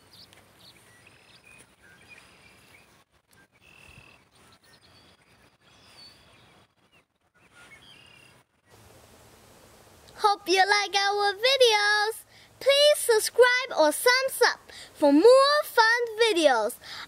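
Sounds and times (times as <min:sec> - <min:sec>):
faint bird calls: 0:00.0 - 0:08.4
low steady hiss: 0:00.0 - 0:17.0.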